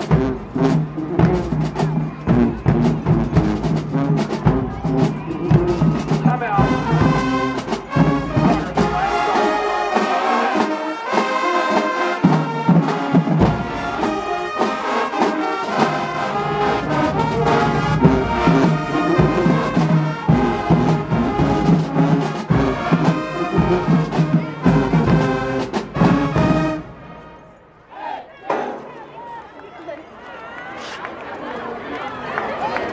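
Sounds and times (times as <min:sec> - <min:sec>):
drum hits: 0:00.0 - 0:10.8, 0:15.8 - 0:26.8
marching band brass: 0:00.0 - 0:28.2.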